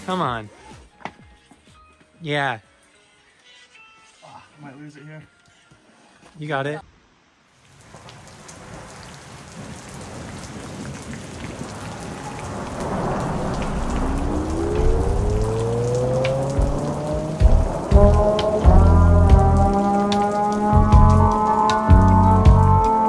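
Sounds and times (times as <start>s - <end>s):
rain-like hiss: 4.2s - 22.7s
slowly rising tone: 12.3s - 23.0s
heavy bass hits: 13.7s - 19.8s, 20.8s - 22.9s.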